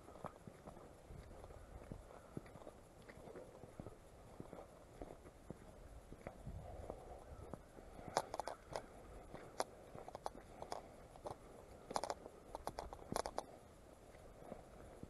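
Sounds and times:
footsteps crunching on gravel: 0.1 - 11.4.

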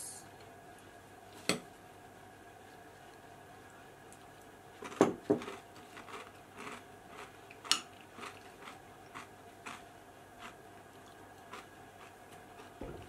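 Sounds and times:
granola being chewed: 2.7 - 12.9.

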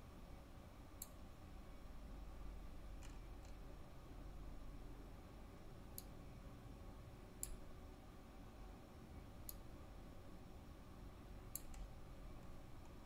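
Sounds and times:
faint low hum: 0.0 - 13.0
computer mouse clicking: 11.5 - 11.9.

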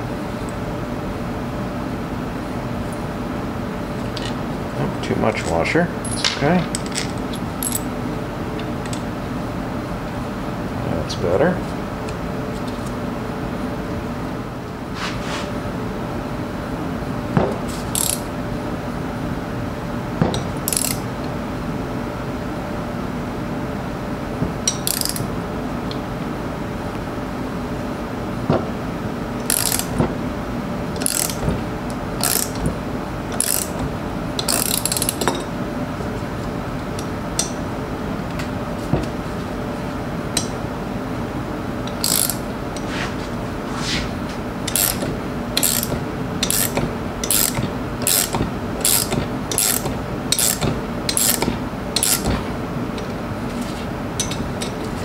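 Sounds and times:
steady low hum: 0.0 - 55.0
ratchet wrench ratcheting: 17.9 - 18.3, 20.6 - 21.0, 24.7 - 25.2, 29.4 - 30.0, 31.0 - 31.4, 32.2 - 32.6, 33.4 - 33.8, 34.4 - 35.4, 41.9 - 42.4, 44.7 - 52.3.

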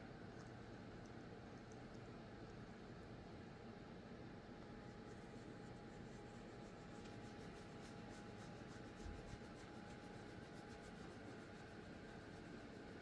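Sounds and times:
faint steady hum: 0.0 - 13.0
scratchy rustling: 4.9 - 13.0.

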